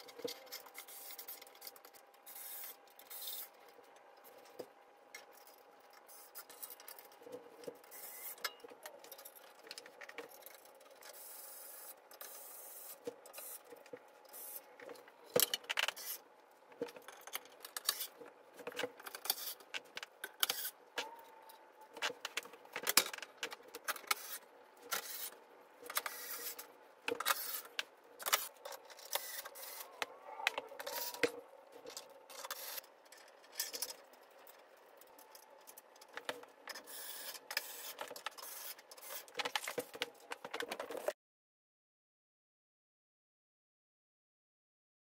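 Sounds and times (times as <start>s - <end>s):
metal and wood parts clattering: 16.7s - 36.9s.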